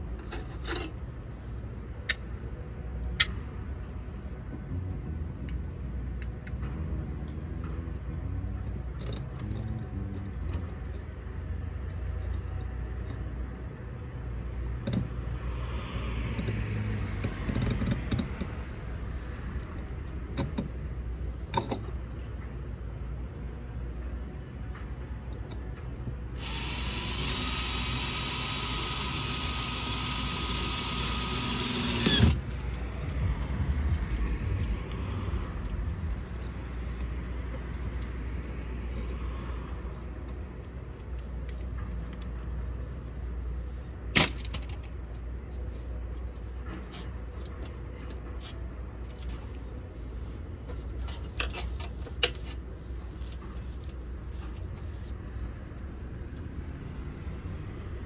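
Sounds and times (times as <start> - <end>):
power drill running: 26.4 - 32.4.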